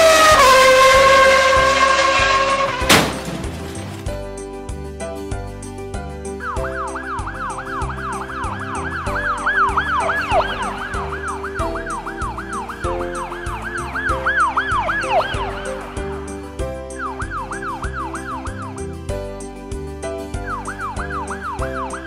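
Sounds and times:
background music with steady beat: 4.1s - 22.0s
siren yelping: 6.4s - 16.2s, 17.0s - 18.8s.

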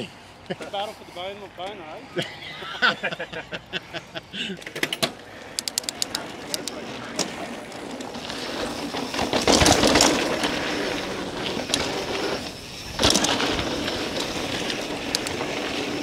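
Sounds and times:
bike jolts: 0.0s - 16.0s
bike rattling: 3.9s - 16.0s
tyres rolling over dirt: 4.4s - 16.0s.

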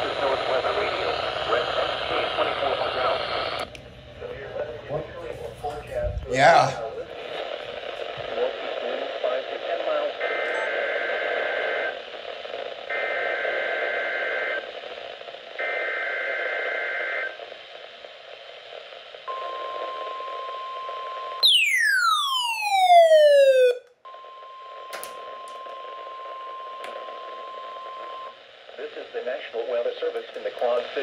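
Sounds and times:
radio static: 0.0s - 20.4s, 25.2s - 31.0s
falling siren-like sweep: 21.4s - 23.8s
steady warning alarm tone: 21.4s - 24.6s.

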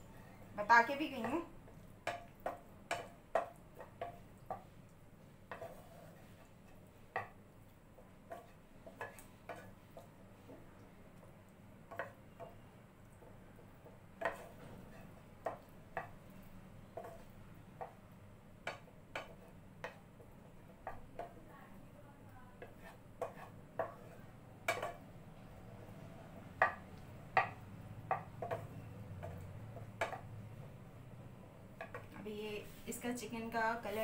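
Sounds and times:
spatula scraping frying pan: 5.4s - 6.8s, 8.2s - 10.1s, 14.2s - 15.6s, 22.6s - 25.0s.

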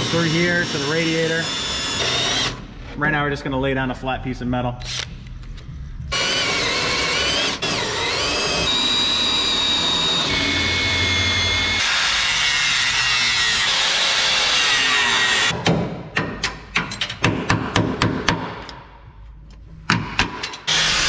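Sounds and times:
cordless drill drilling steel: 0.0s - 2.6s, 6.1s - 15.5s, 20.7s - 21.0s.

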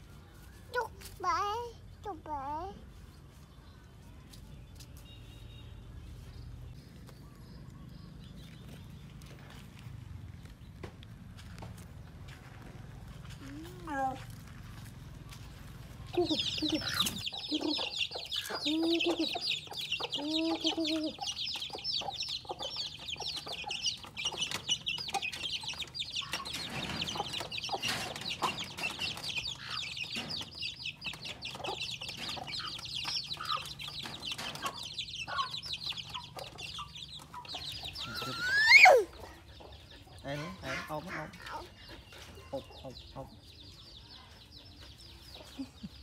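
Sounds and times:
chicks cheeping: 4.7s - 12.7s, 13.4s - 46.0s
hen clucking: 16.1s - 43.3s.

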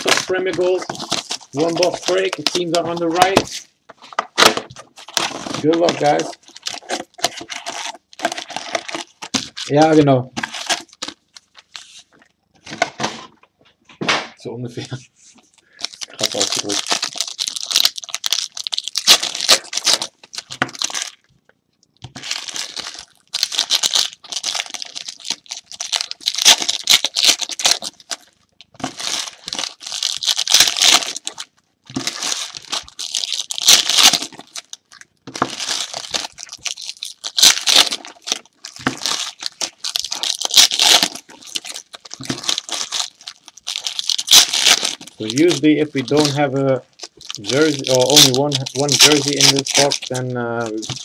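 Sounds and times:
card pack wrappers tearing and crinkling: 0.0s - 12.0s, 15.6s - 21.3s, 22.0s - 51.0s.

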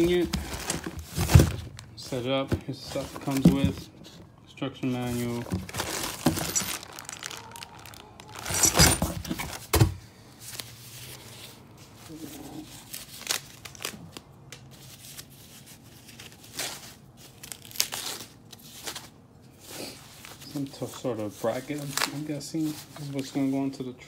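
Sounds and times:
plastic packaging crinkling: 0.0s - 2.1s, 4.9s - 9.8s, 12.6s - 19.2s.

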